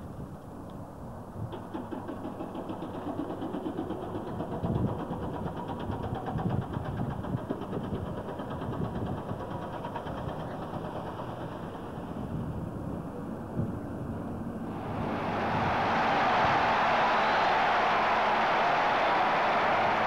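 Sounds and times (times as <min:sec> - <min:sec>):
engine running with fast knock: 0:01.4 - 0:12.6.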